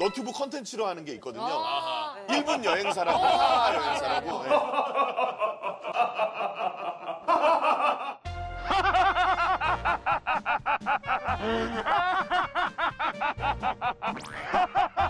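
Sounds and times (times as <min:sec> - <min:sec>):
men laughing: 0:01.5 - 0:15.0
bass-heavy music: 0:08.3 - 0:10.3, 0:11.0 - 0:12.2.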